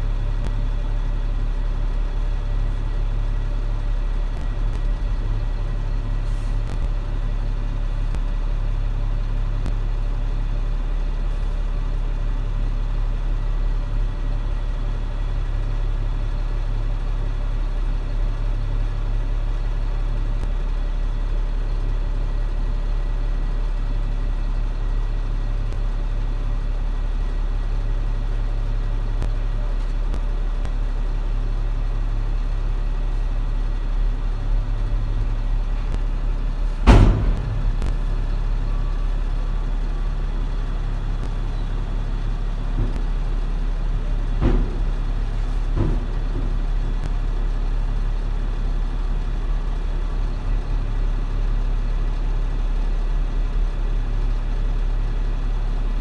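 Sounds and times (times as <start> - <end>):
heavy machine engine idling: 0.0 - 56.0
sharp knocks: 36.8 - 38.2, 44.3 - 45.1, 45.7 - 46.9.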